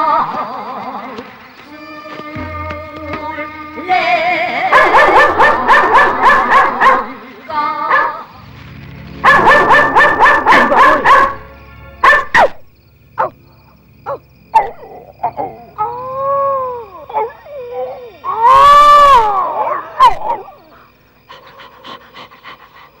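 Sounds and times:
film music: 0:00.4 - 0:18.3
small dog yapping: 0:12.0 - 0:12.6, 0:14.1 - 0:15.9, 0:19.1 - 0:20.8.

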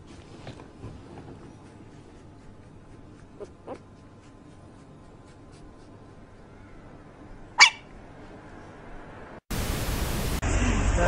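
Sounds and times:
puppy yelping: 0:03.2 - 0:04.0, 0:07.6 - 0:08.0
static hiss: 0:09.5 - 0:11.0.

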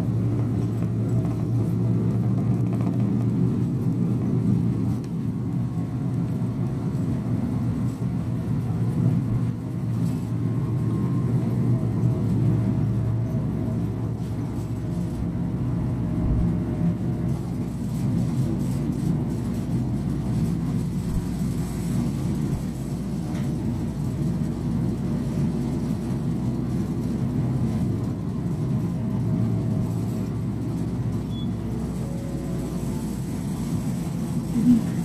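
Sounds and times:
bus engine and road rumble: 0:00.0 - 0:35.0.

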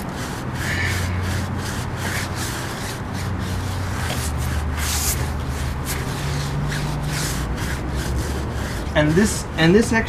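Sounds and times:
brush scrubbing tire: 0:00.0 - 0:09.8.

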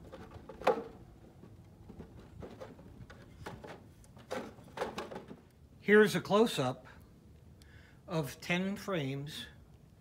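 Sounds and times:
wooden frames clacking: 0:00.0 - 0:05.5.

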